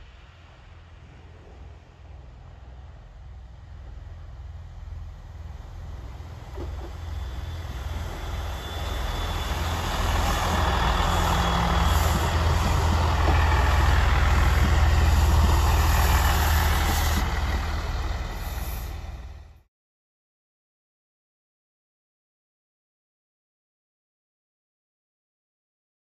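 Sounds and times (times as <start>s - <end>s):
train wheels on rails: 0.0s - 19.6s
diesel train engines rumbling: 0.0s - 19.7s.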